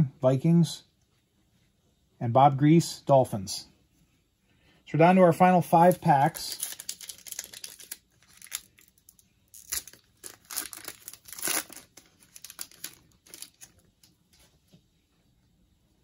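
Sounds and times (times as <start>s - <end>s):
card pack wrapper tearing and crinkling: 5.8s - 14.1s.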